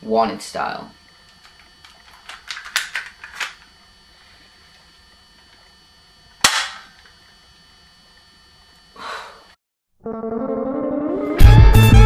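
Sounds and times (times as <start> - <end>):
gunshot: 6.4 - 6.9.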